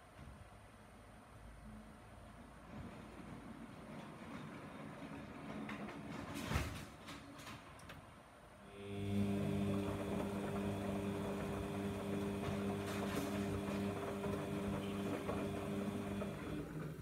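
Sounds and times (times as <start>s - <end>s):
washing machine motor humming: 8.6s - 17.0s
swishing laundry and water: 8.8s - 17.0s.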